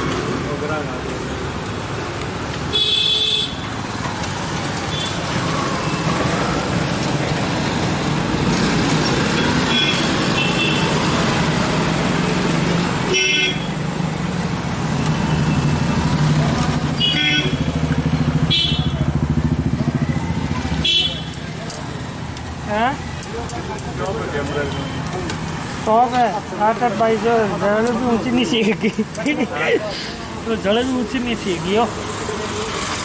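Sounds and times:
road traffic: 0.0s - 33.0s
vehicle horns honking: 2.7s - 3.6s, 9.3s - 11.0s, 13.1s - 13.8s, 16.8s - 17.7s, 18.4s - 19.1s, 20.8s - 21.4s.

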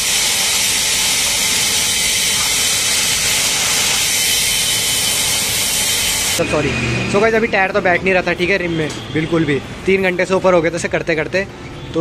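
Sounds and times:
compressed air hissing: 0.0s - 6.4s.

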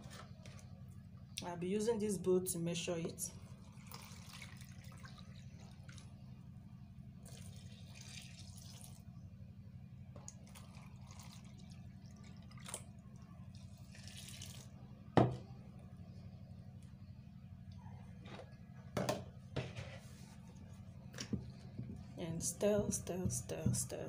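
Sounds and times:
water pouring into plastic bowl: 3.5s - 6.1s, 7.2s - 9.1s, 10.3s - 14.8s.

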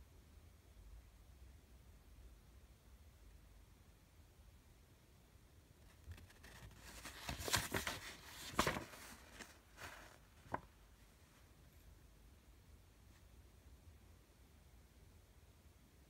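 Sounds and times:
paper pages rustling: 5.8s - 10.8s
sharp paper crinkle: 6.0s - 10.7s.

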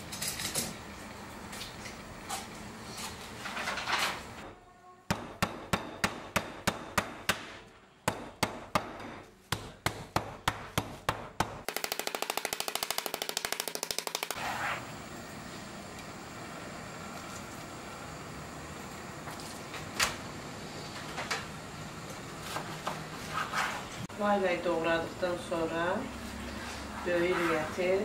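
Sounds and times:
meat mallet pounding on board: 5.1s - 7.5s, 8.1s - 14.1s.

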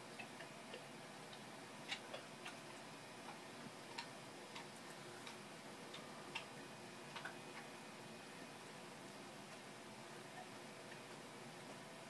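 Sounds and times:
faint steady hiss: 0.0s - 12.0s
small clicks and ticks: 0.1s - 6.5s, 7.1s - 7.7s.

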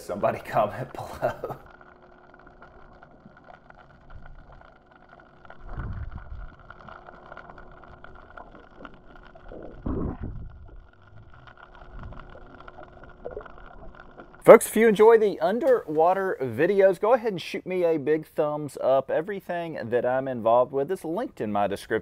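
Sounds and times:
muffled underwater water noise: 0.0s - 16.9s.

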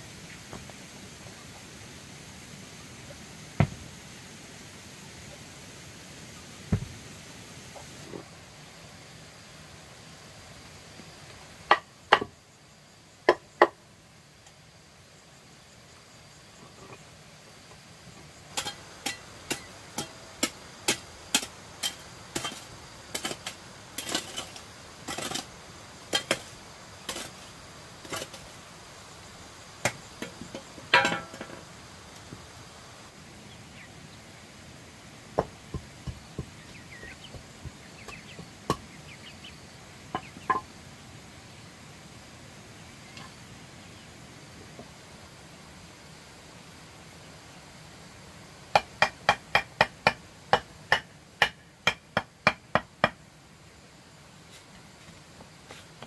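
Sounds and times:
hammer knocking on stone: 35.4s - 38.8s.

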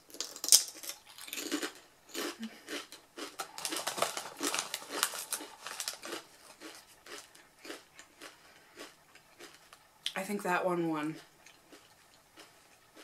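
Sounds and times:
chip bag rustling: 0.1s - 9.8s
potato chips crunching: 0.1s - 10.2s, 11.4s - 13.0s.

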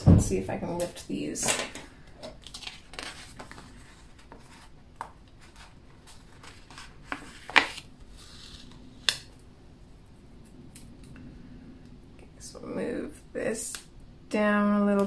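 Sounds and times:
paper rustling: 2.4s - 8.8s.

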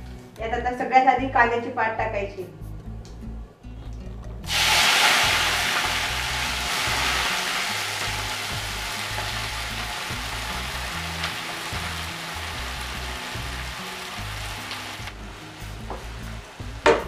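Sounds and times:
onions sizzling in hot oil: 4.5s - 17.0s.

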